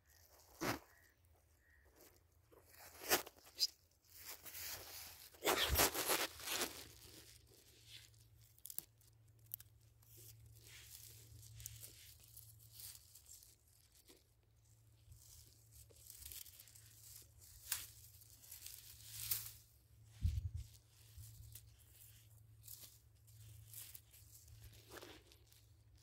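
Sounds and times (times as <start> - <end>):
rustling in dry grass: 0.0 - 26.0
scrapes on sandy soil: 2.7 - 7.0.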